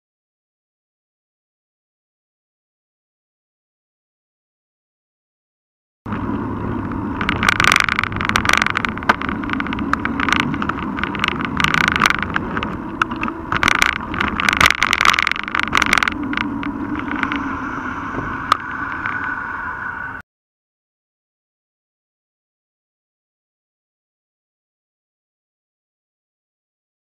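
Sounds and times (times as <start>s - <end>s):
tyres and wind rumble: 6.1s - 20.2s
camera mount rattling and knocking: 7.2s - 17.3s.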